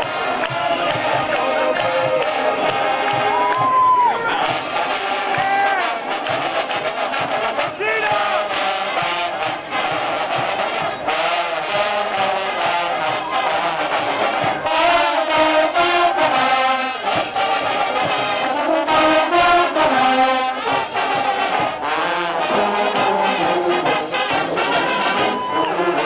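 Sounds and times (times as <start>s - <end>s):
marching brass band playing: 0.0s - 26.0s
trombones: 0.0s - 26.0s.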